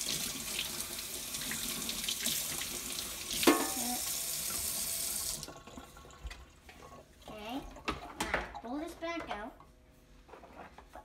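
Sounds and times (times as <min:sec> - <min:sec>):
faucet running into steel sink: 0:00.0 - 0:06.5.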